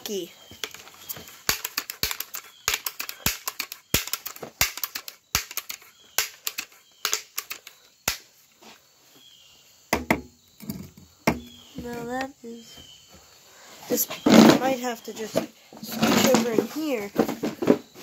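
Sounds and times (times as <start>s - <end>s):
bb gun clicks and rattles: 0.6s - 8.2s.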